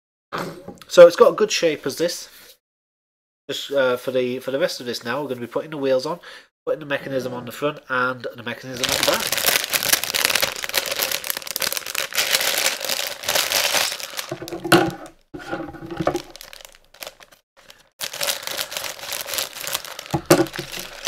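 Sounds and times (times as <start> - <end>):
plastic bag crinkling and tearing: 8.7 - 21.0.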